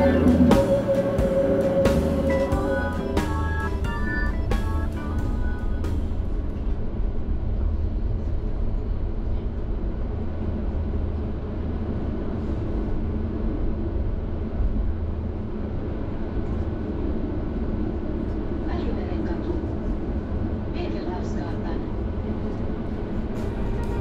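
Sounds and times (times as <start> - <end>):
faint steady whine: 0.0 - 24.0
tram wheels rumbling: 0.0 - 24.0.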